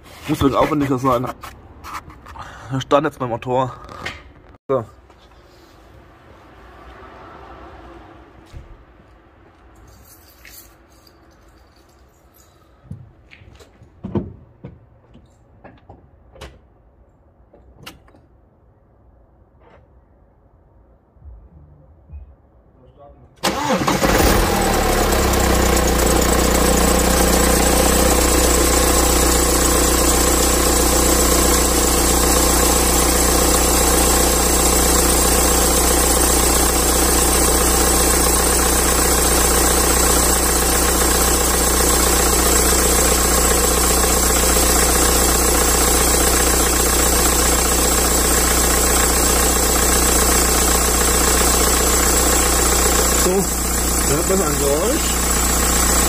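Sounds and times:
car engine starting and idling: 23.4 - 56.0.

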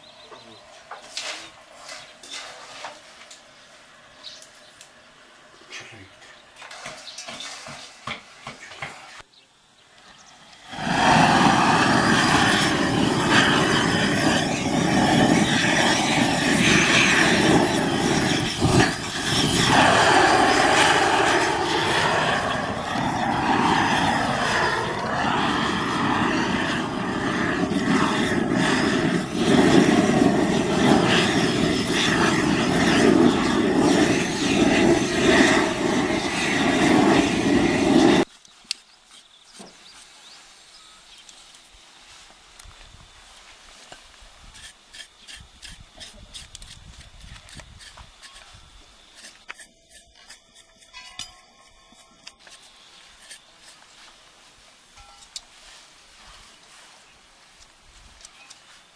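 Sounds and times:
blow torch flame rushing: 10.4 - 38.3.

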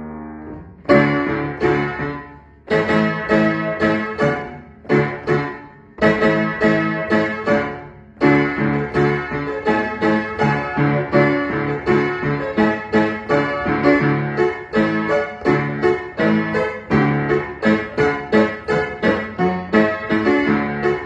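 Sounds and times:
acoustic piano chords and notes: 0.0 - 21.0.

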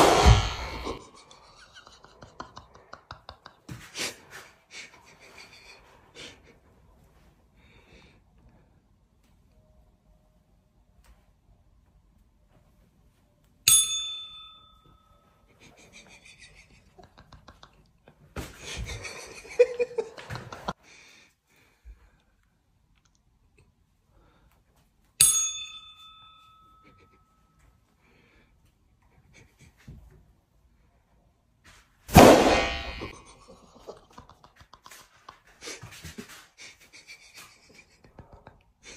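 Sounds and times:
bell-like ding: 13.7 - 15.2, 25.2 - 27.2.

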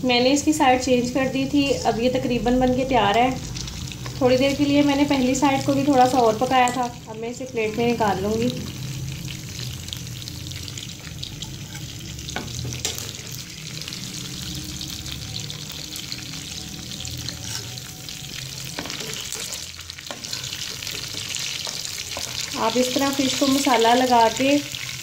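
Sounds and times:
fish sizzling in oil: 0.0 - 25.0.

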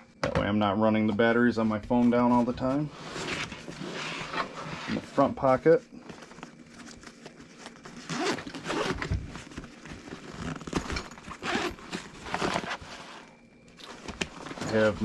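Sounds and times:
fabric rustling: 6.0 - 15.0
zipper rasping open: 7.7 - 13.3.

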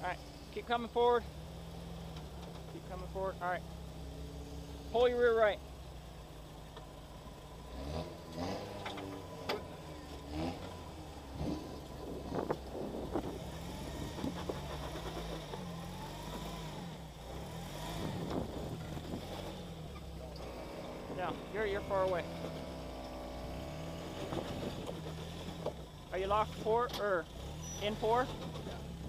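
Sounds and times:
engine running at low revs: 0.0 - 29.0.

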